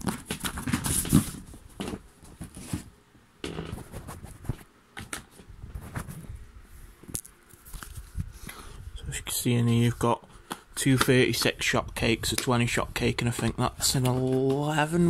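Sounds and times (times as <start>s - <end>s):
cardboard box scraping and knocking: 3.5s - 4.6s.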